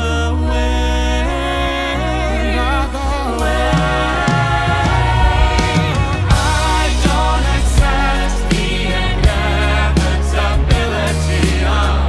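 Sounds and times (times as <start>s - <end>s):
musical theatre band music: 0.0s - 12.0s
steady drum beat: 3.3s - 12.0s.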